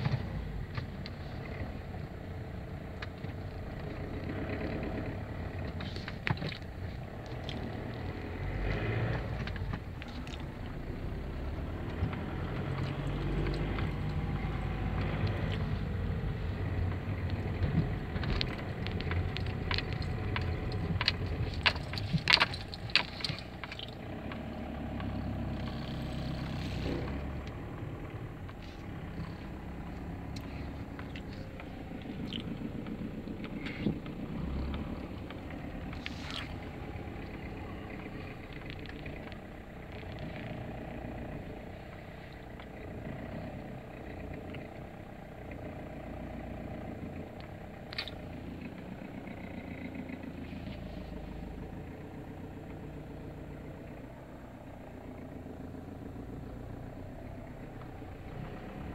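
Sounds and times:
car engine and road rumble: 0:00.0 - 0:58.9.

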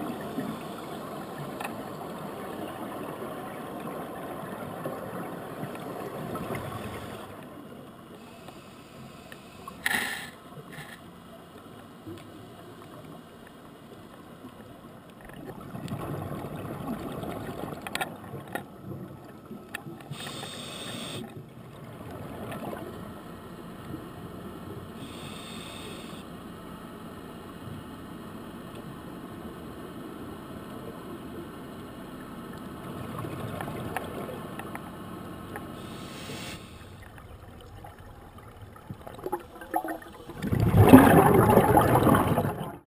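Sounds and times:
exhaled bubbles underwater: 0:15.2 - 0:23.1, 0:37.1 - 0:42.8
regulator hissing inhalations: 0:20.1 - 0:21.3, 0:25.0 - 0:26.3, 0:35.8 - 0:37.0.

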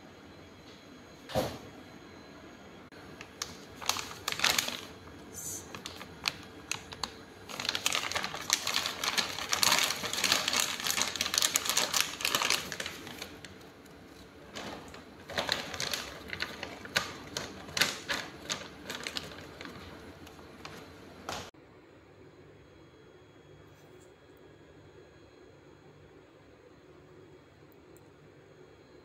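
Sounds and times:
plastic bag crinkling: 0:03.0 - 0:21.5.

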